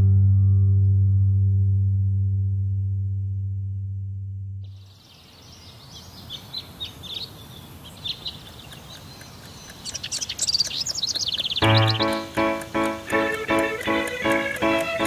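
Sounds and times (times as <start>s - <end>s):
music: 0.0s - 4.6s, 11.6s - 15.0s
birds chirping and singing: 4.8s - 15.0s
held musical note: 11.6s - 15.0s.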